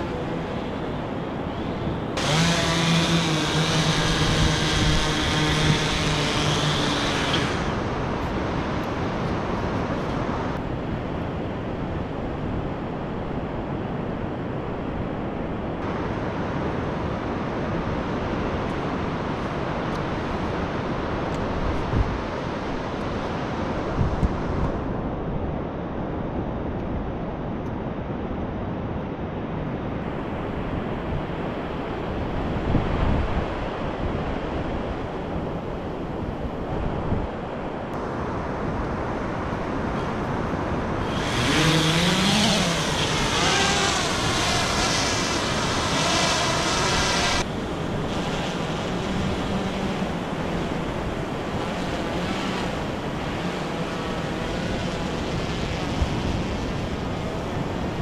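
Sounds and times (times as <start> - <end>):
drone propellers whining: 0.0 - 10.6, 39.9 - 58.0
wind on microphone: 0.0 - 58.0
surf washing on beach: 30.1 - 58.0.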